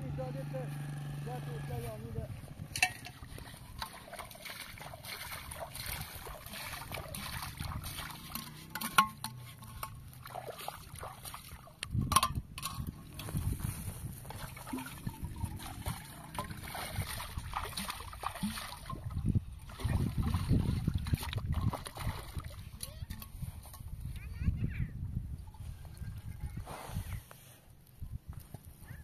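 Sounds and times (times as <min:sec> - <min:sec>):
water trickling and splashing: 0:02.0 - 0:24.1.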